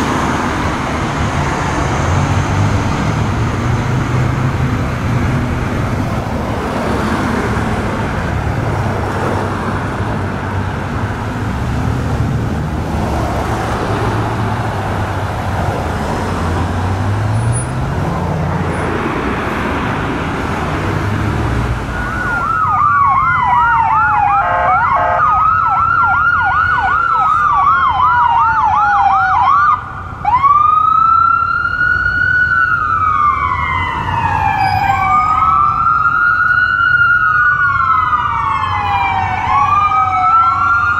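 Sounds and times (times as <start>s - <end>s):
road traffic: 0.0s - 40.9s
ambulance siren: 21.8s - 40.9s.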